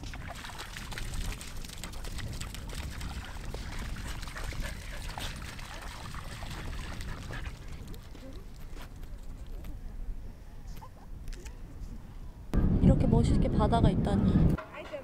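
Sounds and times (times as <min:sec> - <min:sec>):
wind on microphone: 0:00.0 - 0:14.6.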